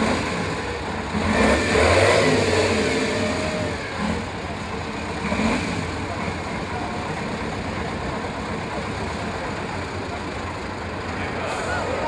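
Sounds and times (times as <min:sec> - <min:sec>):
truck engine low rumble: 0:00.0 - 0:12.0.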